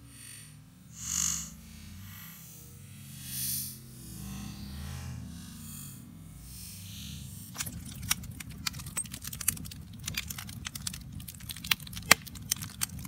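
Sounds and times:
low steady rumble: 0:01.5 - 0:13.0
wood fire crackling and popping: 0:07.5 - 0:13.0.

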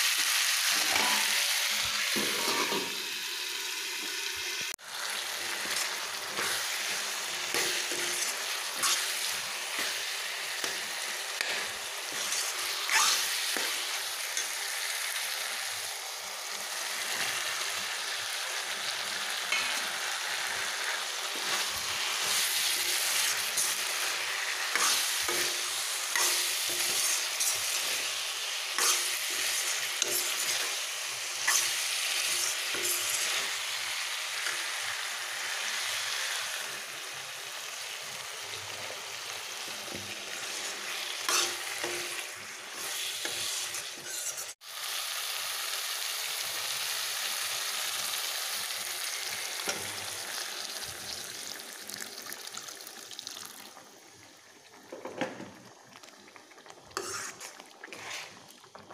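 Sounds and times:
curry sizzling in a pan: 0:00.0 - 0:58.9
metal ladle scraping a pan: 0:05.2 - 0:14.6, 0:19.5 - 0:33.6, 0:39.9 - 0:44.6, 0:57.0 - 0:58.5.

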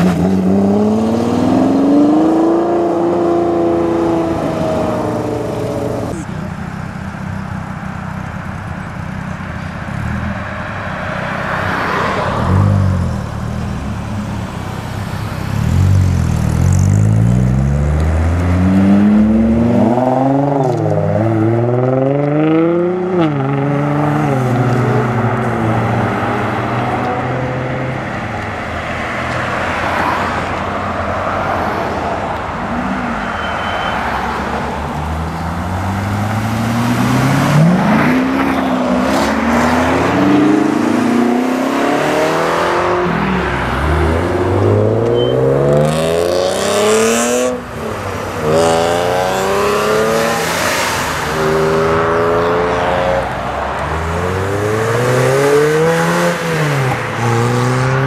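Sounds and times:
sports car engines accelerating: 0:00.0 - 0:58.0
engine revving: 0:35.8 - 0:47.8, 0:48.4 - 0:53.4, 0:54.0 - 0:58.0.

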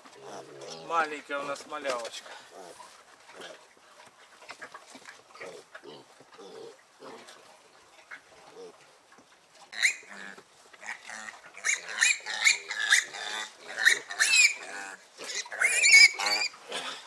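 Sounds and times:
piglets squealing: 0:09.8 - 0:17.0.

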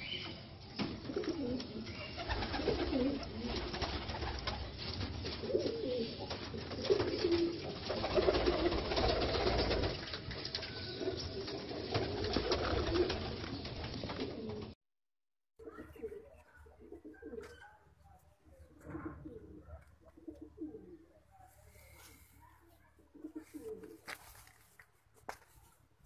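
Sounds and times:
pigeons cooing: 0:01.0 - 0:10.1, 0:10.9 - 0:14.7, 0:15.6 - 0:17.8, 0:18.7 - 0:22.3, 0:23.1 - 0:24.1.

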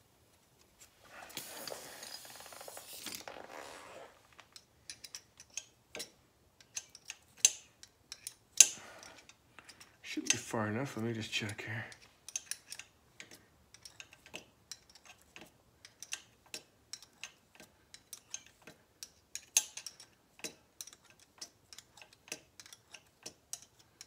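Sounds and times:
metallic clicks of thread tap: 0:15.4 - 0:23.8.

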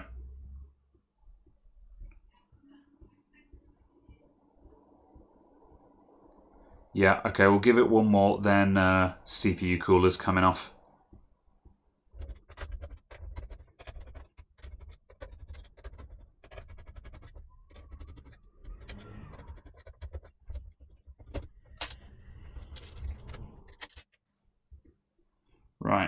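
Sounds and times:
faint low hum: 0:00.0 - 0:26.0
small clicks and scrapes of hardware: 0:12.3 - 0:24.2.

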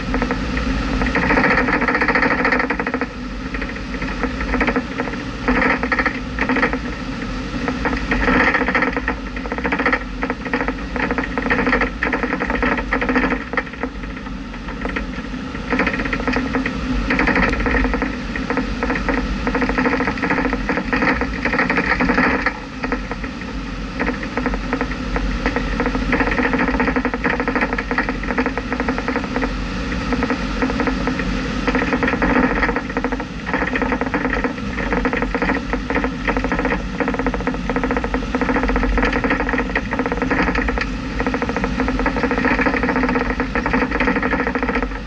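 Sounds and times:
small rattling clicks: 0:00.0 - 0:07.0, 0:07.6 - 0:45.0.

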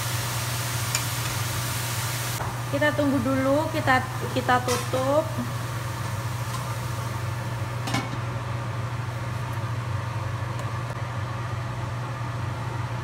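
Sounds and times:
food hissing in a wok: 0:00.0 - 0:02.4
gas burner hum: 0:00.0 - 0:13.0.

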